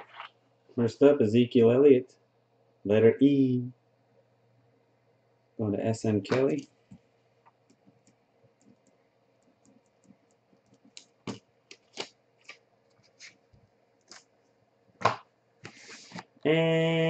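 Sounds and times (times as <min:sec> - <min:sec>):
short scrape: 0:15.6 - 0:16.2.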